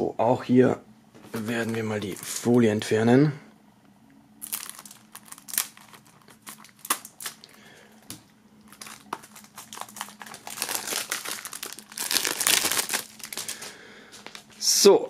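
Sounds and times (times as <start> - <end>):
plastic film crinkling: 1.3 - 2.5, 4.4 - 14.5.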